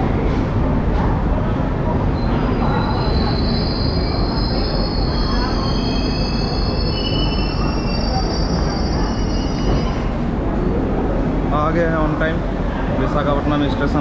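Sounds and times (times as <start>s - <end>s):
train rumble: 0.0s - 14.0s
train wheels squealing: 2.2s - 10.2s.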